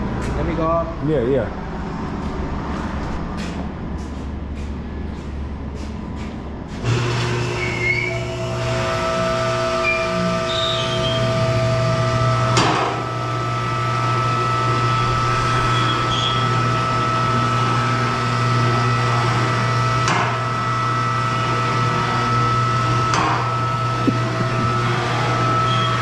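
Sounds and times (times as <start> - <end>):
hydraulic pump motor hum: 3.4 - 26.0.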